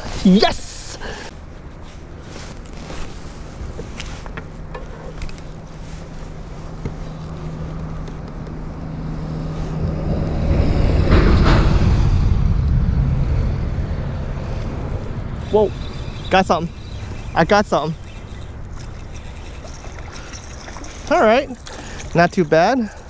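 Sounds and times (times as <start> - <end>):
steady low hum: 0.7 - 23.0
wind buffeting microphone: 8.5 - 22.2.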